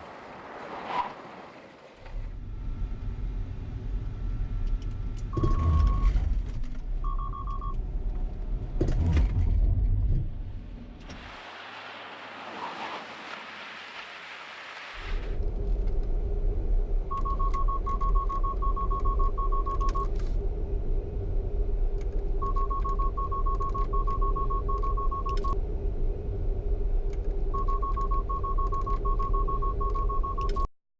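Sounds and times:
road rumble inside car: 2.0s - 11.8s, 15.0s - 30.7s
car warning chime beeping: 7.0s - 7.8s, 17.1s - 20.1s, 22.4s - 25.6s, 27.6s - 30.7s.

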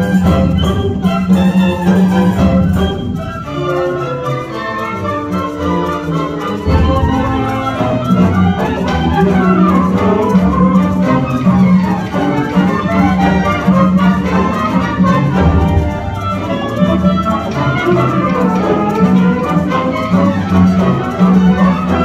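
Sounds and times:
orchestra strings playing: 0.0s - 22.0s.

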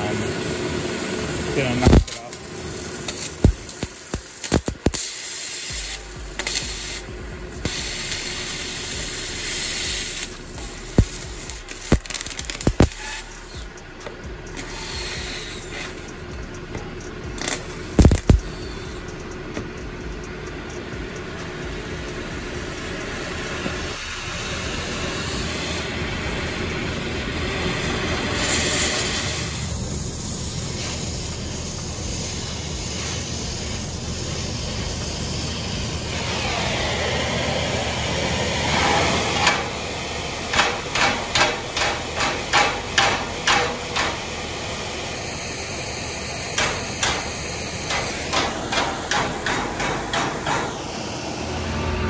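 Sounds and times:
welding torch flame hissing: 0.0s - 16.5s, 17.2s - 19.1s, 21.5s - 51.6s
sharp metallic knocks: 40.5s - 44.3s, 46.6s - 47.3s, 47.9s - 50.9s.

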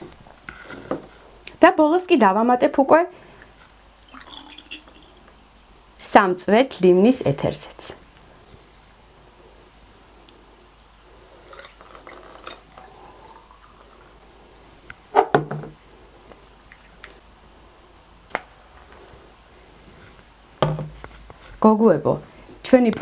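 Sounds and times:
woman's voice: 1.6s - 3.1s, 6.0s - 8.0s, 21.6s - 23.0s
small clicks and drips: 3.4s - 5.4s
liquid trickling through funnel: 4.0s - 5.3s, 11.3s - 14.3s.

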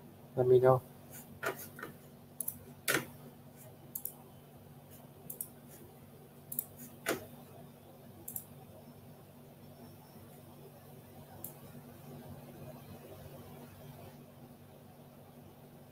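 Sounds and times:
low steady hum: 0.0s - 15.9s
small clicks and ticks: 2.4s - 3.0s, 3.9s - 4.2s, 5.3s - 5.6s, 6.5s - 6.7s, 8.2s - 8.5s.

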